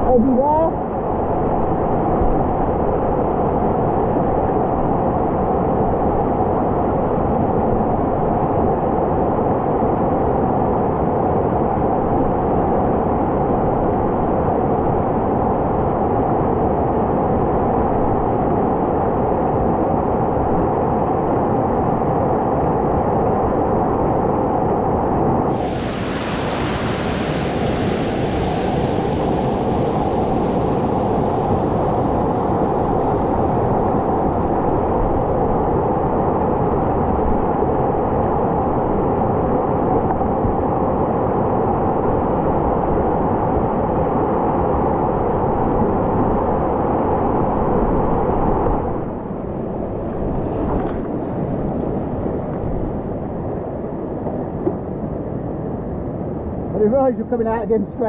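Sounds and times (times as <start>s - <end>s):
whitewater roaring: 25.5s - 41.8s.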